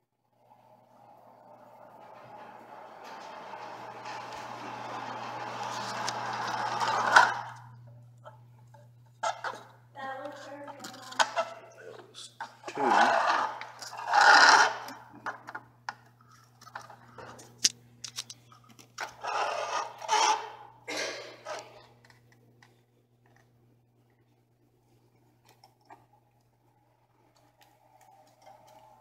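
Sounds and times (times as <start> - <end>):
scraping and rubbing: 0.9 - 7.8, 12.4 - 15.2, 19.0 - 20.7.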